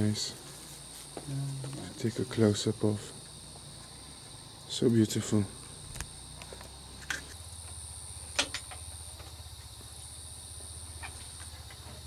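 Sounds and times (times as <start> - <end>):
night insects trilling: 0.0 - 12.0.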